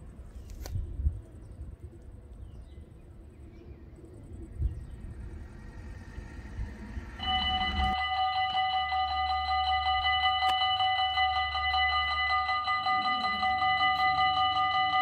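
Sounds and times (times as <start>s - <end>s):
low wind rumble: 0.0s - 15.0s
level crossing warning bell: 5.2s - 15.0s.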